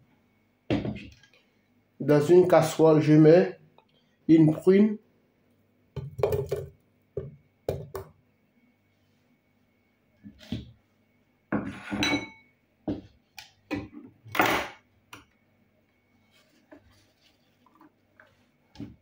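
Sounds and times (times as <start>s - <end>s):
dishes and utensils clinking: 11.6s - 12.5s.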